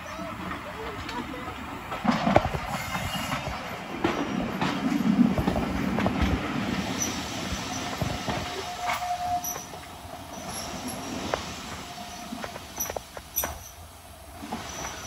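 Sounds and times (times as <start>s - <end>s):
train wheels clicking over rail joints: 0.4s - 15.0s
wheel squeal: 8.5s - 10.9s.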